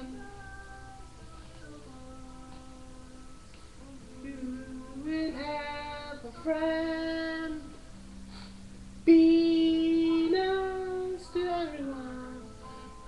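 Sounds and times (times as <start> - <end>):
high voice singing children's song: 9.0 - 13.0.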